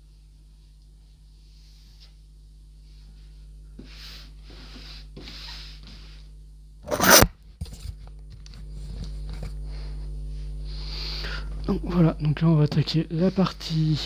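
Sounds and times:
cardboard box rustling and scraping: 0:06.9 - 0:07.3.

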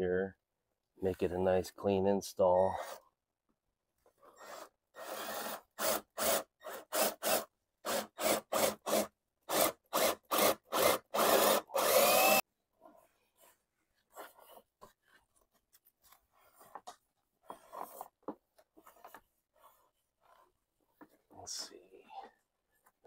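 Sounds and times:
cordless drill boring wood: 0:02.7 - 0:03.0, 0:04.3 - 0:12.4.

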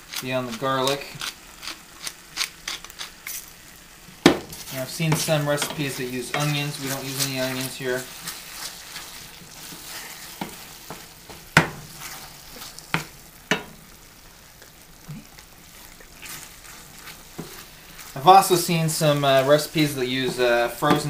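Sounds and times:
faint sizzle: 0:00.0 - 0:21.0
wooden spoon stirring thick dip: 0:04.5 - 0:13.7, 0:14.6 - 0:21.0
spoon knocking against pan: 0:12.9 - 0:13.8.

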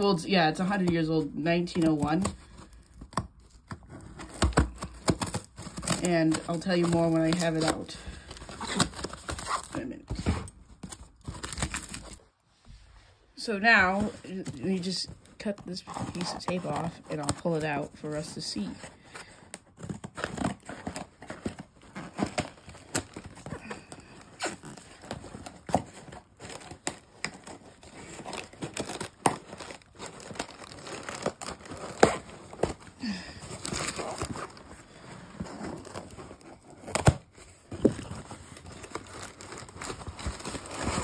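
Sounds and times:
tape tearing: 0:00.0 - 0:12.2, 0:13.8 - 0:41.0
scissors cutting packing tape: 0:01.7 - 0:09.8, 0:19.8 - 0:32.9.

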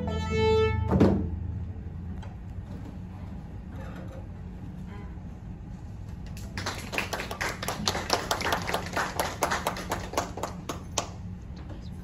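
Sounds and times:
small audience clapping: 0:06.2 - 0:11.4.

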